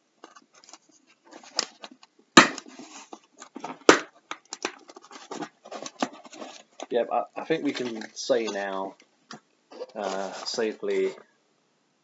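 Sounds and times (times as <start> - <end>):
cardboard box rustling: 2.6 - 6.9, 7.5 - 8.9, 9.7 - 11.2.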